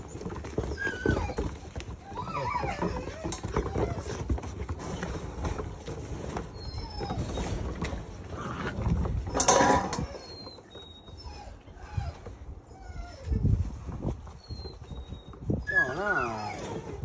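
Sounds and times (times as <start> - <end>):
puppy paws pattering on wooden deck: 0.0 - 17.0
metal water bowl clattering: 9.4 - 10.0.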